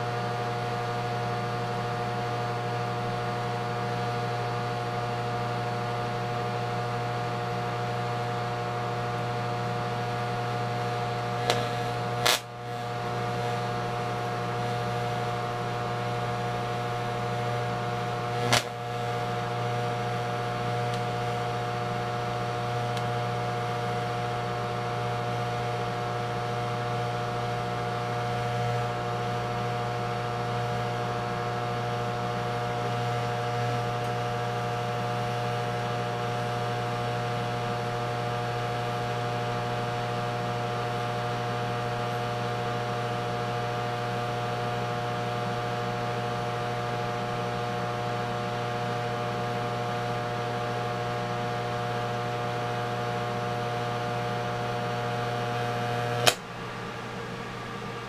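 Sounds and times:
welding arc buzzing: 3.0 - 46.8, 54.0 - 56.4
welding arc snap: 10.8 - 15.4, 18.0 - 21.4, 22.2 - 23.7, 55.6 - 56.5.

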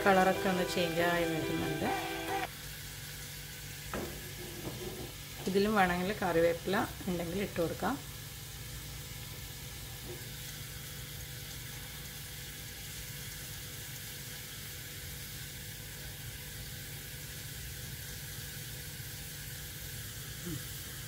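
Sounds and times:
onions sizzling in a pan: 0.0 - 21.0.

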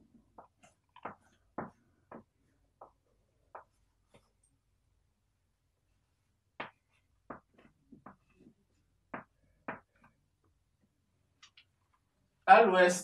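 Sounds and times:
chalk tapping and scraping on blackboard: 0.3 - 4.3, 6.6 - 10.1.

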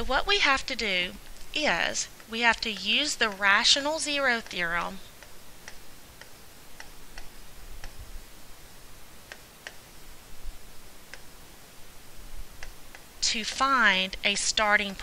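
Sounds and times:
stylus tapping tablet screen: 0.4 - 8.0, 12.6 - 15.0.

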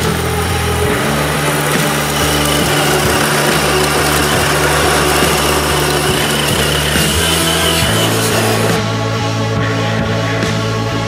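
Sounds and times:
steady high tone: 0.0 - 8.9
background music with low chords: 0.0 - 11.0.

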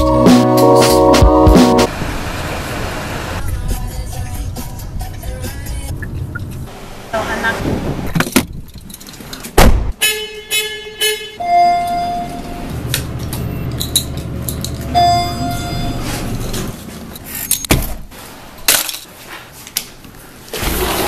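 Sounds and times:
elevator chime: 11.4 - 13.9, 14.8 - 16.6.

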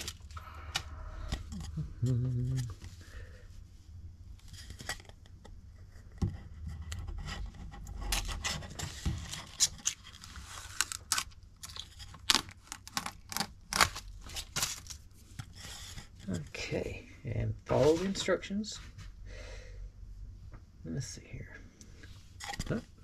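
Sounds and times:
plastic film peeling crackles: 9.1 - 15.0.

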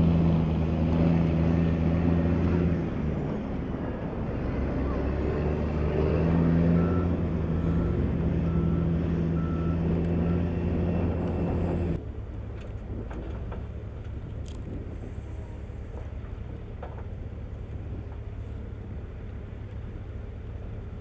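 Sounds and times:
forklift engine running: 0.0 - 21.0
reversing alarm beeping: 6.4 - 11.7.

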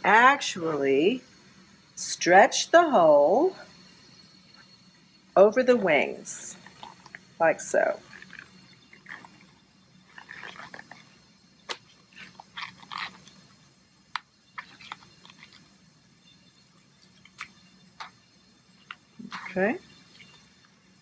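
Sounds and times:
rubber sheet rustling and stretching: 10.1 - 11.1, 11.7 - 13.4.

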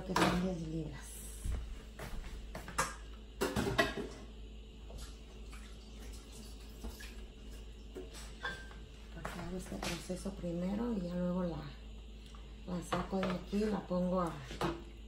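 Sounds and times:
water bubbling at the boil: 4.9 - 8.6.

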